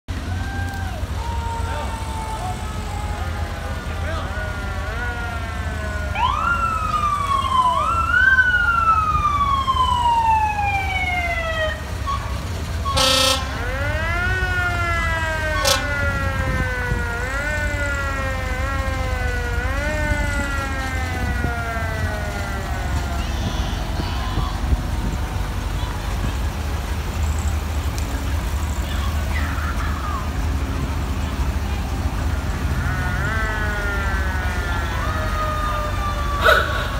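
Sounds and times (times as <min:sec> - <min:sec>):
low engine rumble: 0:00.1 - 0:36.9
sirens wailing: 0:00.1 - 0:36.9
horn blast: 0:12.8 - 0:13.8, 0:15.4 - 0:16.2.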